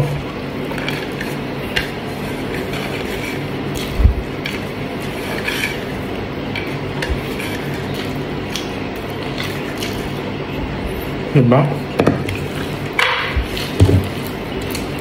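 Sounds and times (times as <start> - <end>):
fingers working rice on plate: 0.6 - 10.3
person chewing food: 2.4 - 10.3.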